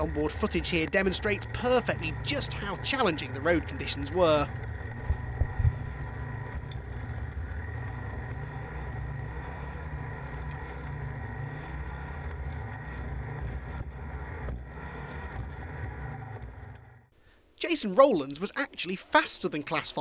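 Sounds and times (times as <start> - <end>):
car engine under load: 0.0 - 17.2.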